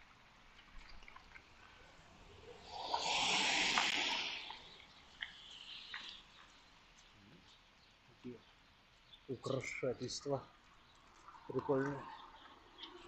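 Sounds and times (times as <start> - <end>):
tyres hissing on wet street: 1.8 - 6.6.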